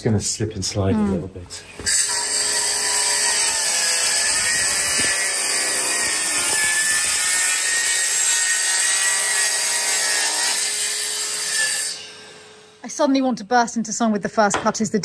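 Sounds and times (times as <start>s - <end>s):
circular saw cutting wood: 1.9s - 12.8s.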